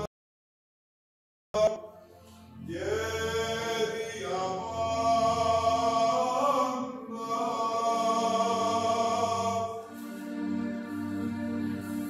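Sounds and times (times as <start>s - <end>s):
choir chanting long held notes: 2.7s - 12.0s.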